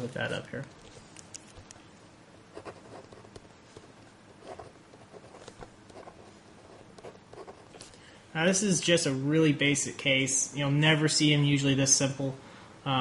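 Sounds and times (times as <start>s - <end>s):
pen scratching on paper: 4.4s - 7.8s.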